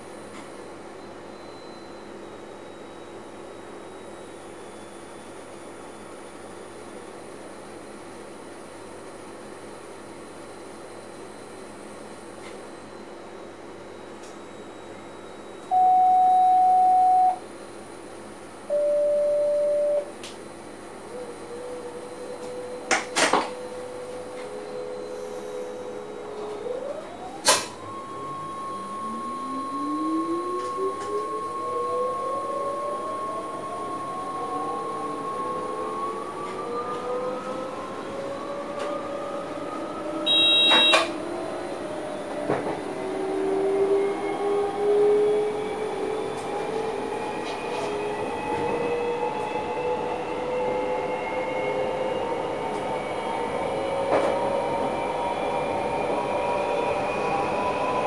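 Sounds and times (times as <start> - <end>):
train cab hum: 13.6 - 29.8, 30.4 - 33.2, 40.3 - 41.2
click: 14.2 - 14.4, 20.2 - 20.4
electronic warning tone: 15.3 - 17.4, 18.7 - 20.1, 23.6 - 35.3, 40.3 - 41.1
electronic beeps: 15.7 - 17.4, 18.7 - 20.1, 40.3 - 41.0
rail noise: 20.7 - 58.0
electric train motors whining: 21.0 - 58.0.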